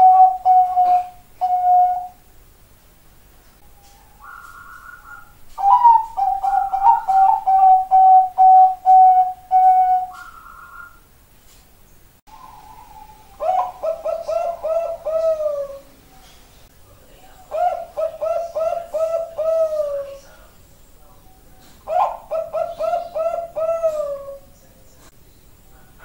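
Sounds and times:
dove cooing: 0.0 - 2.3, 3.6 - 11.0, 12.3 - 16.3, 17.5 - 20.5, 21.8 - 24.6
steady hum-like tone: 0.0 - 26.0.

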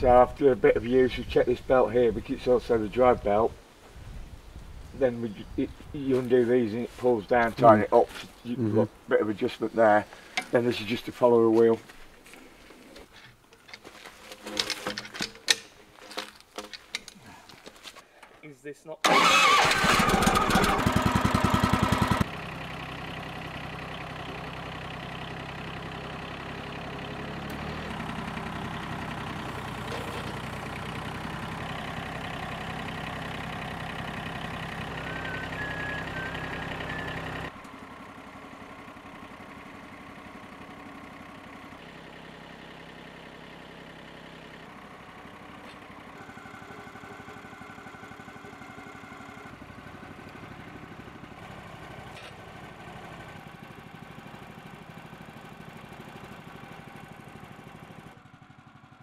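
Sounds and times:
sawmill engine running: 19.0 - 59.0.

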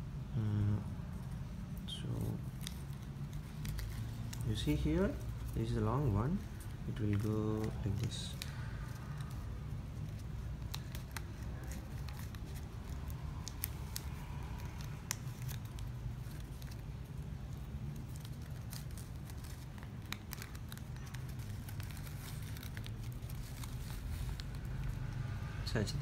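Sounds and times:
steady low hum: 0.0 - 26.0
plastic ribbon rustling and crackling: 1.2 - 26.0.

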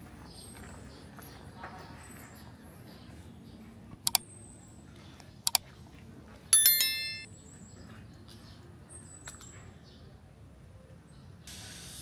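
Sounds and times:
sharp clicks: 4.0 - 4.2
short metallic ring: 6.6 - 7.3.

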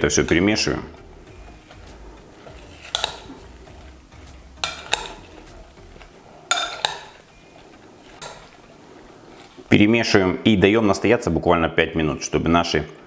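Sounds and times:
spoon clinking against glass bowl: 2.6 - 3.5, 4.6 - 8.5.

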